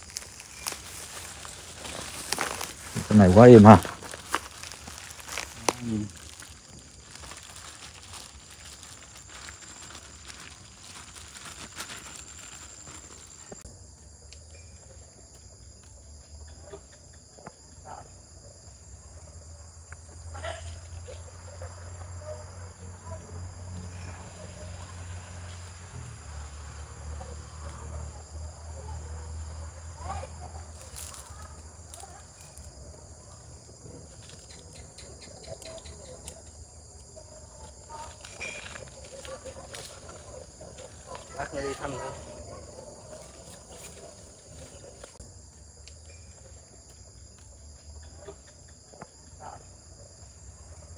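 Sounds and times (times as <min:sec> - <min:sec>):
rustling through dry grass: 0:00.0 - 0:13.6, 0:30.7 - 0:32.8, 0:36.8 - 0:45.2
crickets chirring: 0:00.0 - 0:50.9.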